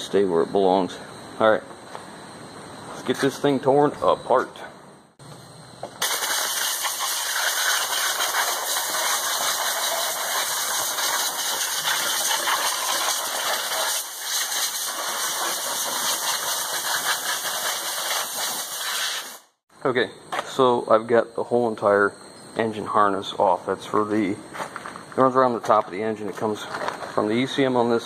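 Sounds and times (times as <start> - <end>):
compressed air blow gun hissing: 6.0 - 19.6.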